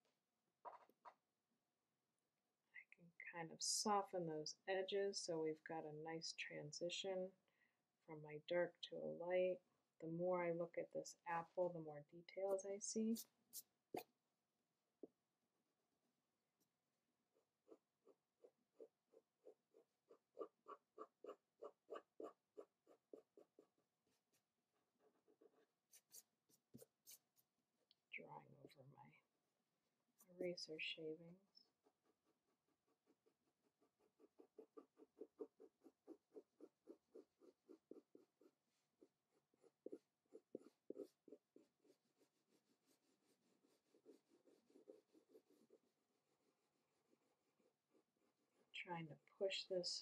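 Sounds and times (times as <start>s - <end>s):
pencil scratching on paper: 12.4s - 14.1s, 16.5s - 27.6s, 28.4s - 29.0s, 29.8s - 48.8s.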